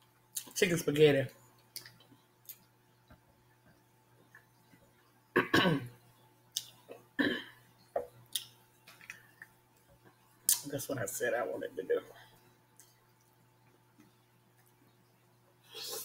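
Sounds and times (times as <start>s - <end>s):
mouth noises while eating: 12.7s - 16.0s.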